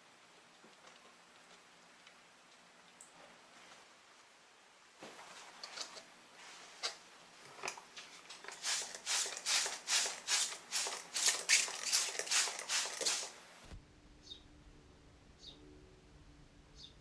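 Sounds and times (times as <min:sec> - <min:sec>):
paper rustling: 0:08.0 - 0:13.4
spray bottle squirts: 0:08.5 - 0:13.4.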